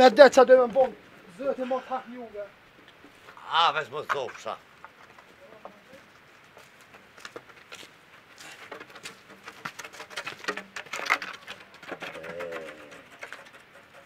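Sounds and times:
footsteps crunching on stony path: 2.7 - 13.5
walking stick knocking on ground: 2.8 - 14.0
bird calling: 11.9 - 14.0.

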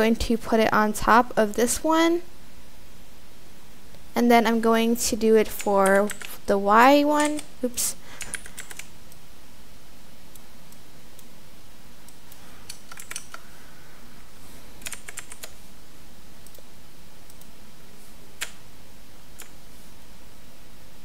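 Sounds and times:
steady low hiss: 0.0 - 21.0
keyboard and mouse clicks: 5.4 - 6.4, 7.1 - 7.5, 8.2 - 9.2, 12.1 - 13.5, 14.8 - 15.6, 16.4 - 16.7, 17.3 - 17.5, 18.4 - 18.6, 19.4 - 19.6.

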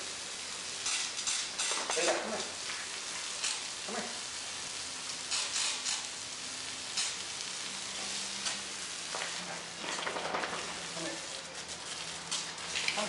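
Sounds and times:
hose spraying water on pavement: 0.0 - 13.0.

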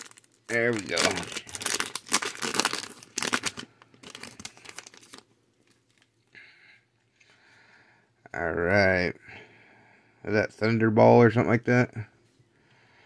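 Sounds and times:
wrapper crinkling: 0.0 - 6.2.

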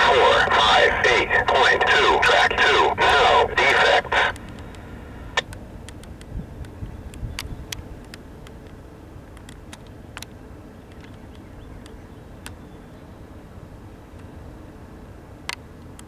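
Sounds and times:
train low rumble: 0.0 - 9.4.

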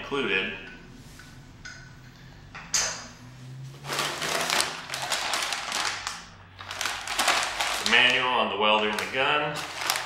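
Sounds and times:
plastic bag crinkling: 3.8 - 10.0.

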